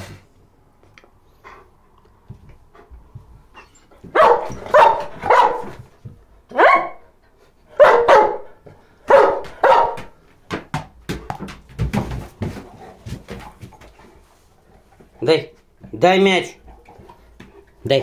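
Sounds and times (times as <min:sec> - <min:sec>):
dog barking: 0:04.1 - 0:05.8, 0:06.5 - 0:07.0, 0:07.8 - 0:10.1.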